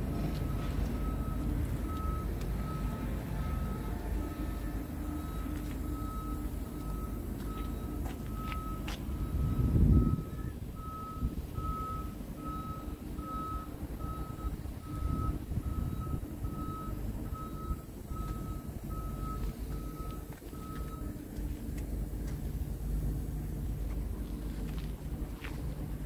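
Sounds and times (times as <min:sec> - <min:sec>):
reversing alarm beeping: 0:00.0 - 0:21.4
engine rumbling: 0:00.0 - 0:26.0.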